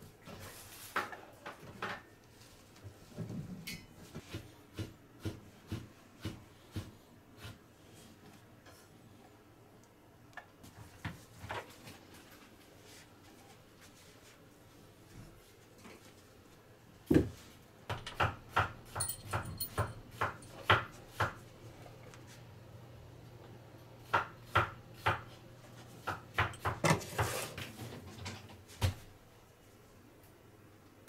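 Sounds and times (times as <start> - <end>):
rustling scrape: 26.9 - 28.2.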